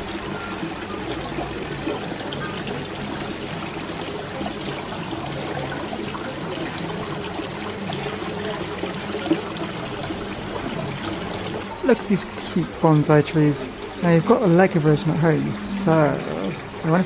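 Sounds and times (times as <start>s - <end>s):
water trickling and splashing: 0.0s - 17.0s.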